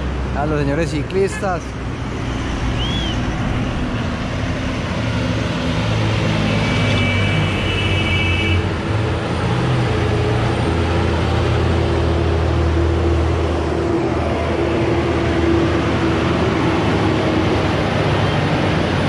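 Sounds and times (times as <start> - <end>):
truck diesel engines running: 0.0 - 19.0
tyre and road noise: 0.0 - 19.0
high steady squeal: 2.3 - 4.0.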